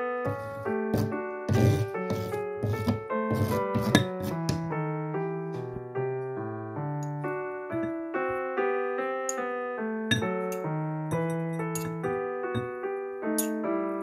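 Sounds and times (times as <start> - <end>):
gentle piano music: 0.0 - 14.0.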